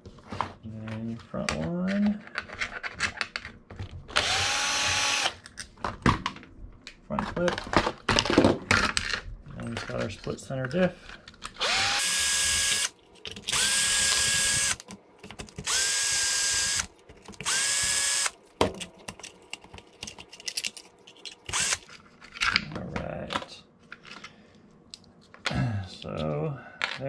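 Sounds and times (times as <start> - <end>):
electric screwdriver whine: 4.2 - 5.4, 11.6 - 14.8, 15.6 - 18.4, 21.5 - 21.8
small parts clicking and knocking: 11.0 - 22.7.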